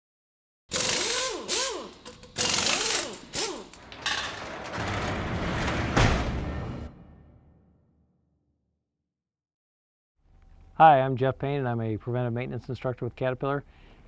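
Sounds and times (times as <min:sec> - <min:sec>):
heavy hit: 0:04.0 - 0:08.0.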